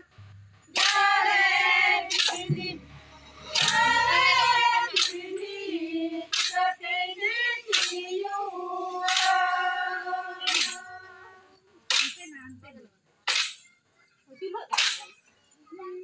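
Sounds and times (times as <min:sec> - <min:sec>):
sharp struck beat: 0:00.0 - 0:05.5
women singing: 0:00.8 - 0:02.9, 0:03.5 - 0:11.6.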